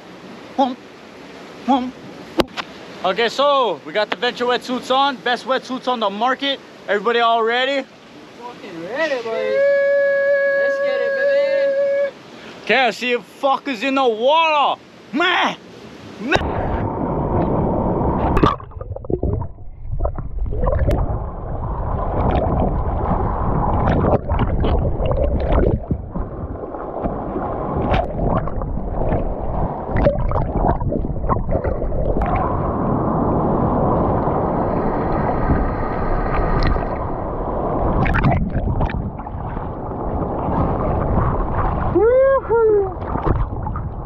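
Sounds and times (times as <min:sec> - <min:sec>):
underwater bubbles rushing: 0:16.6 - 0:42.0, 0:42.9 - 0:44.0
sea water sloshing and splashing: 0:18.2 - 0:42.0, 0:42.9 - 0:44.0
water hitting camera housing: 0:27.8 - 0:29.3.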